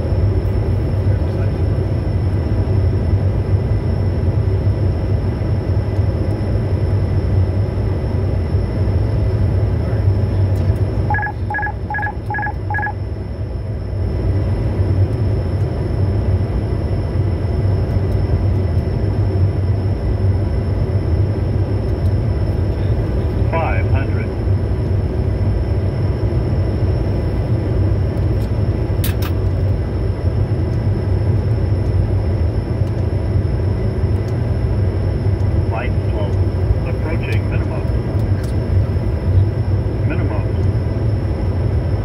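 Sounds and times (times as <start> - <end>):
cockpit hum with airflow: 0.0 - 42.0
short electronic beeps: 11.1 - 13.0.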